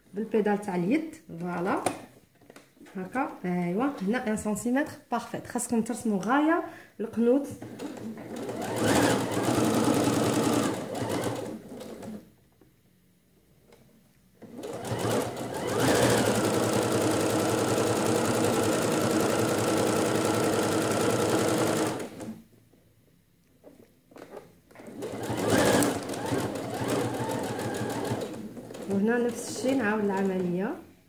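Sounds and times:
sewing machine stitching: 0:07.6 - 0:12.2, 0:14.4 - 0:22.4, 0:24.2 - 0:30.6.

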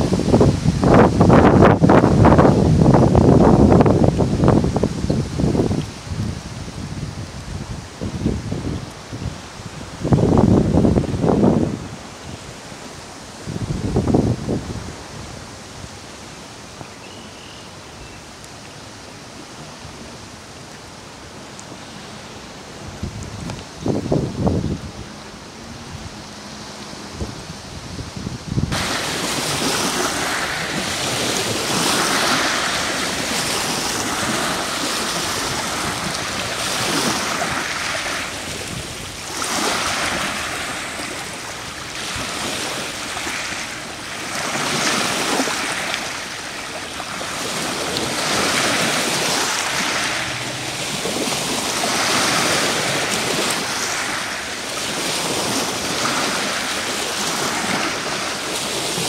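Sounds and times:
waves washing over pebble beach: 0:28.7 - 0:59.0.

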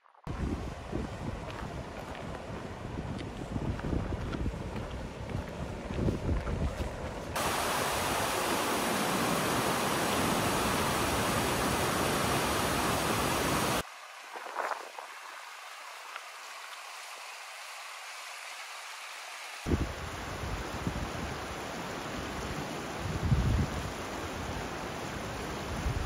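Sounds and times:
stream rapids pouring over rocks: 0:07.4 - 0:23.1, 0:23.8 - 0:26.0
faint hiss: 0:07.4 - 0:26.0.

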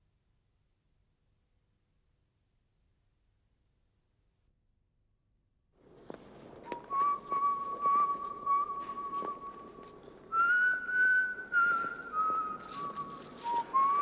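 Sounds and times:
man whistling a slow tune: 0:06.6 - 0:14.0.

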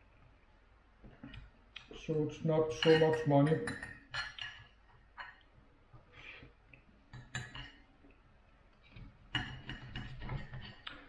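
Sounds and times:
cutlery scraping on plate: 0:02.7 - 0:05.4, 0:09.3 - 0:10.8.

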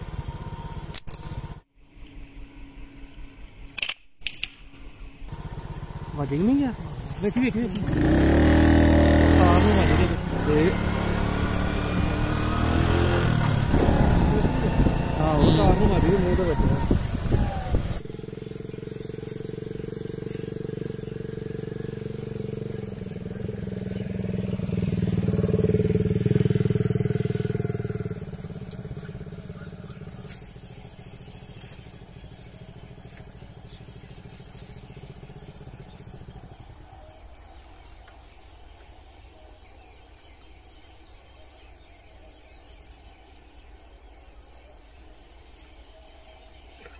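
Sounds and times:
vehicle engine passing by: 0:05.3 - 0:37.2.

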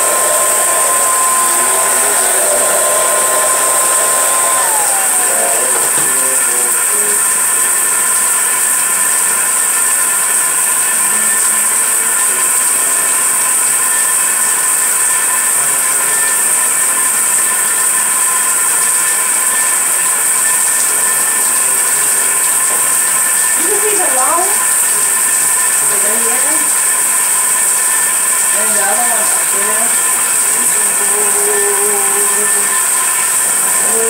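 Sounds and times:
hair dryer blowing air: 0:00.0 - 0:07.7
faint motor whine: 0:00.0 - 0:34.0.

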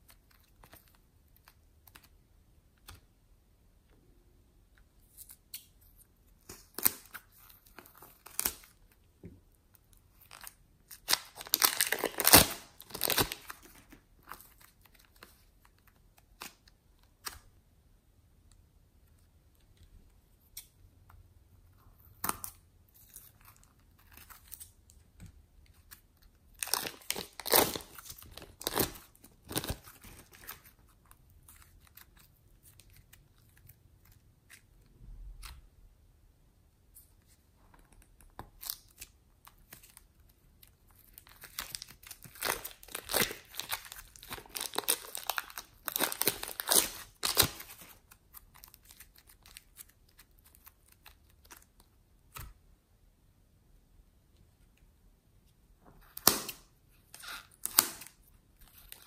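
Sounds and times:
plastic bags crinkling: 0:11.0 - 0:14.0, 0:26.6 - 0:30.6, 0:41.2 - 0:47.9.

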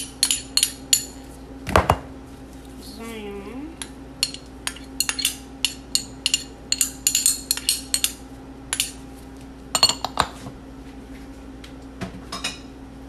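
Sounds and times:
metal spoon clinking on container: 0:04.2 - 0:09.0.

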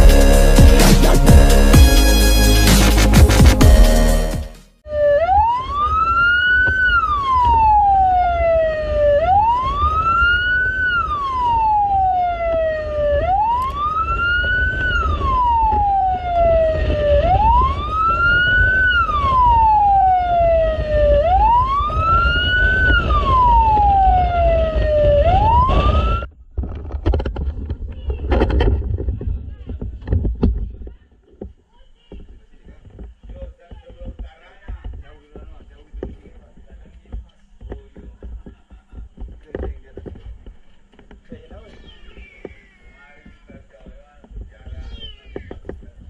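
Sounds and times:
fire engine siren wailing: 0:04.9 - 0:26.3.

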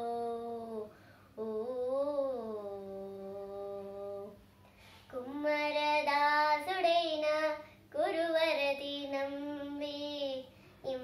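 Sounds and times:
girl singing unaccompanied: 0:00.0 - 0:11.0
girl breathing: 0:00.9 - 0:01.4, 0:04.5 - 0:05.2, 0:07.6 - 0:07.9, 0:10.5 - 0:10.9.

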